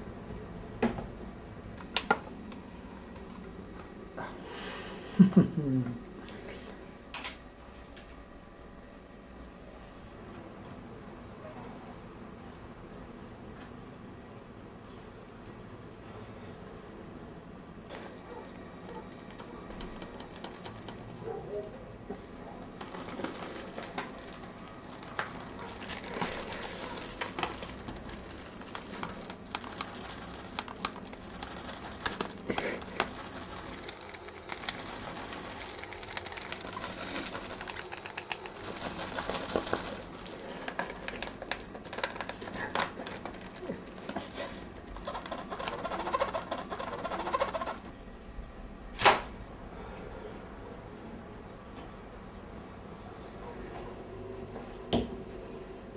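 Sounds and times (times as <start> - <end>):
teeth gnawing plastic case: 19.0 - 21.2, 22.8 - 47.9
fingernails scratching cellophane: 22.9 - 47.8
plastic case clicks and crinkles: 35.7 - 44.3.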